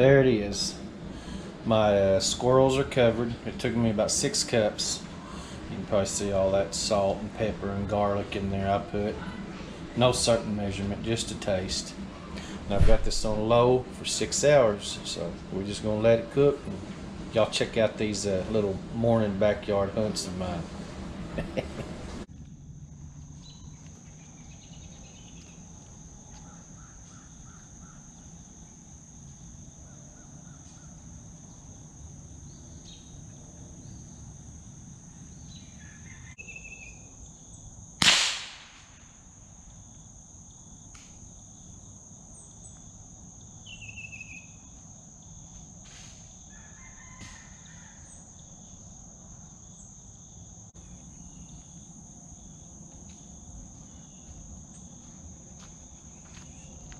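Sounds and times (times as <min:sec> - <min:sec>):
high insect drone: 0:00.0 - 0:56.9
faint chirping calls: 0:23.4 - 0:34.3, 0:35.1 - 0:37.7, 0:41.6 - 0:45.6
rifle shot: 0:38.0 - 0:39.1.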